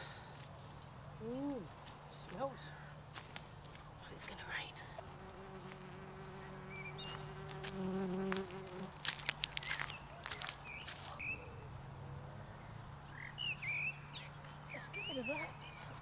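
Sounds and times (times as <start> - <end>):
bird chirps: 6.2 - 7.4, 9.6 - 16.0.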